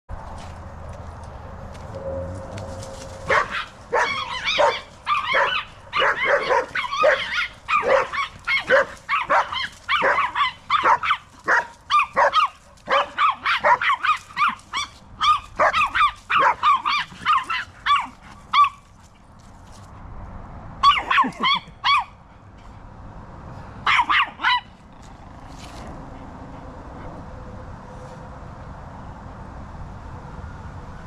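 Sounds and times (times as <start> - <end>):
small dog yapping: 3.2 - 18.8, 20.8 - 22.1.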